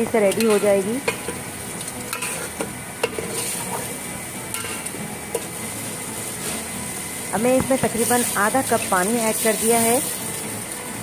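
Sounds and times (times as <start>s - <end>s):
chicken sizzling in a pot: 0.0s - 11.0s
metal spoon stirring: 0.3s - 3.9s.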